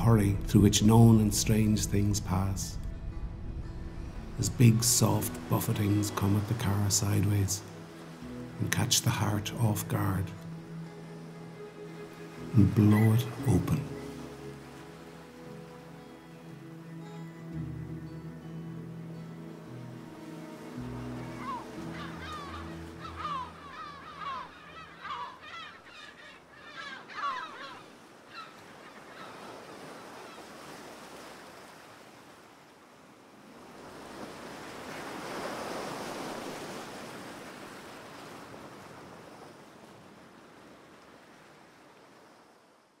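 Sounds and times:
waves breaking on shore: 0.0 - 17.6, 18.8 - 43.0
waterbirds honking: 4.5 - 17.2, 18.8 - 31.2.

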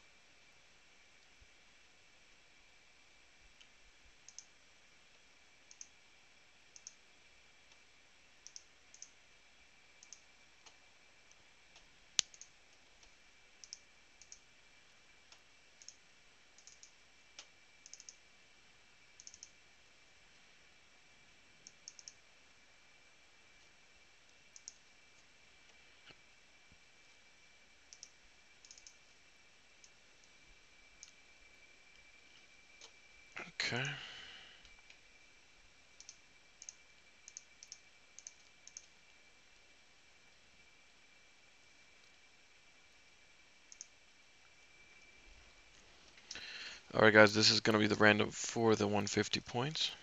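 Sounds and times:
faint high-pitched whine: 0.0 - 50.0
computer mouse and keyboard clicks: 3.6 - 4.5, 5.7 - 5.9, 6.7 - 7.0, 8.4 - 9.1, 10.0 - 10.8, 11.7 - 14.4, 15.3 - 16.0, 16.6 - 18.2, 19.2 - 19.6, 21.6 - 22.2, 24.3 - 24.9, 27.9 - 29.1, 36.0 - 38.9, 43.7 - 43.9.

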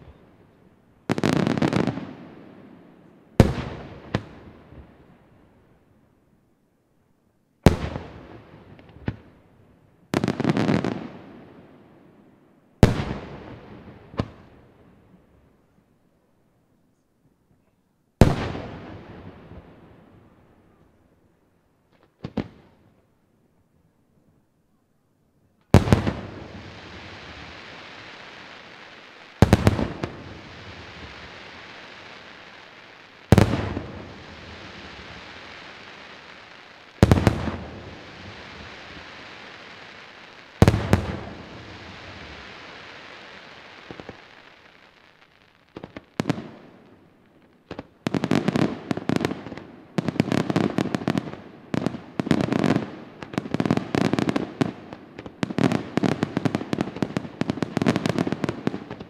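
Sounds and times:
firework hiss: 25.8 - 46.0.

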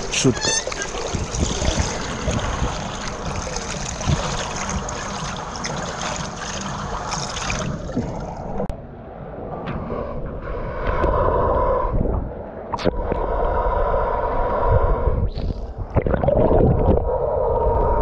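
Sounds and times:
pool water splashing: 0.0 - 8.7.

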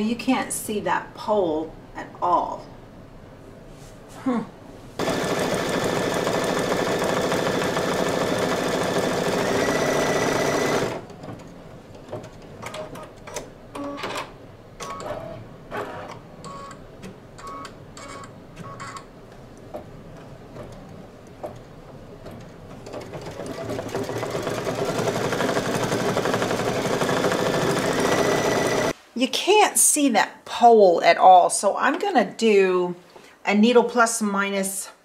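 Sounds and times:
embroidery machine rattling: 5.0 - 11.0, 22.8 - 28.9.

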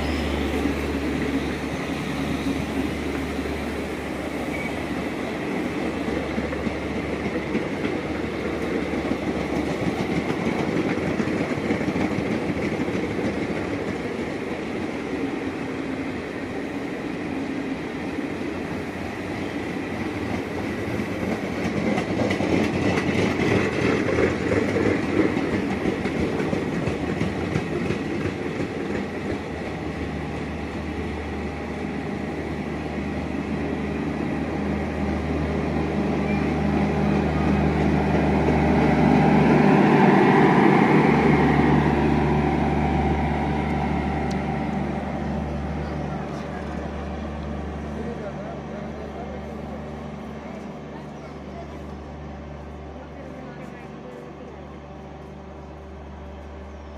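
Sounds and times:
train passing at speed: 0.0 - 56.9
wheels clicking over rail joints: 20.2 - 29.8.

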